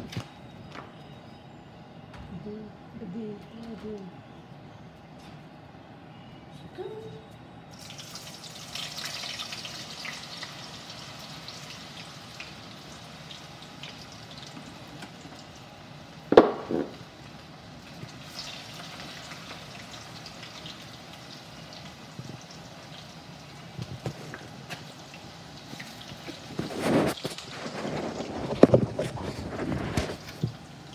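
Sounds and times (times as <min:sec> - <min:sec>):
potato strips frying in oil: 0:07.7 - 0:30.9.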